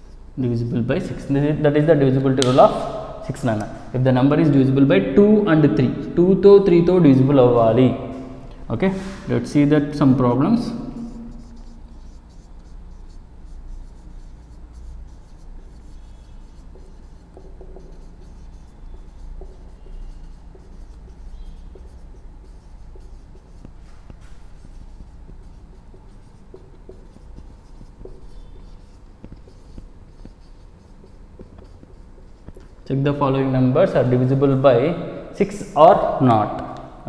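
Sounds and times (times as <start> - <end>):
steady low hum: 0.0 - 37.0
marker scratching on whiteboard: 1.0 - 4.5, 5.6 - 34.6.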